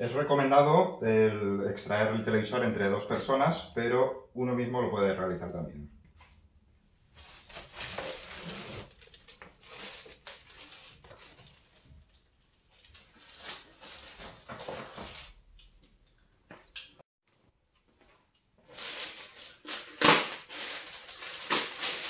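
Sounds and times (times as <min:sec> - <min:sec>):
plastic bag crinkling: 0:07.4 - 0:15.3, 0:18.6 - 0:22.0.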